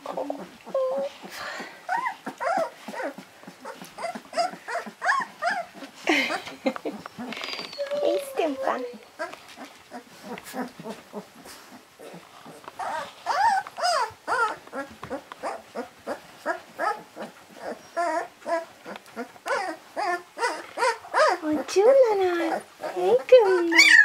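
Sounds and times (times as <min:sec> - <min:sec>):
puppies whimpering and squealing: 0:00.0 - 0:24.0.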